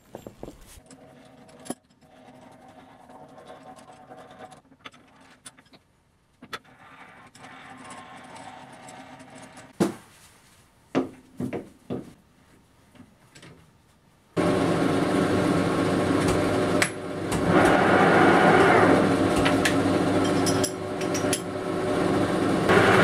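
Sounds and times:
steady machine hum: 14.4 - 23.0.

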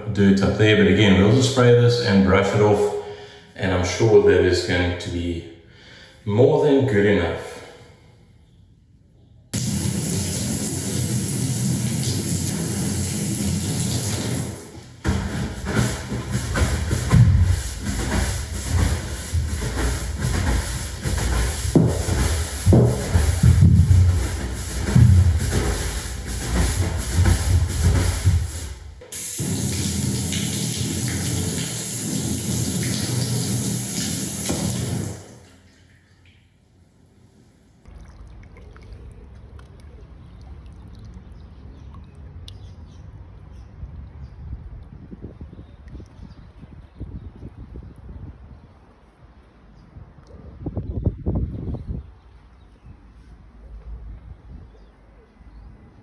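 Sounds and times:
water pouring onto paving: 9.6 - 15.1, 29.1 - 36.3, 37.9 - 42.7
push broom scrubbing wet floor: 9.6 - 35.3
hose spraying water: 9.6 - 35.5
small drips: 29.0 - 36.6, 37.9 - 43.5.

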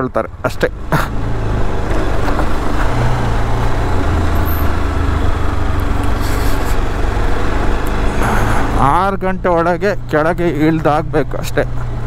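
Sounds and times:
rushing noise: 2.0 - 9.0.

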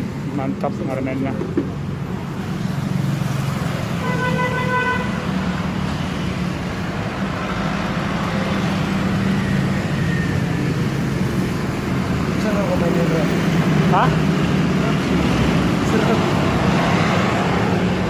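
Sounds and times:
traffic engine hum: 0.0 - 18.0
vehicle horn tooting: 4.0 - 5.2.

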